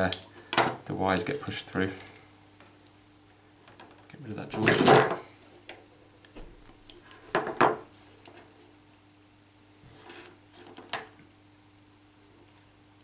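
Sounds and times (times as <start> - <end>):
wires rustling and clicking: 3.6 - 9.0.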